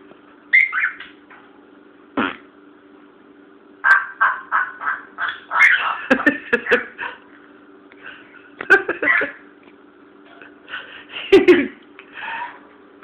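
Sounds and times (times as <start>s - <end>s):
parrot squawking and mumbling: 4.0s - 6.1s.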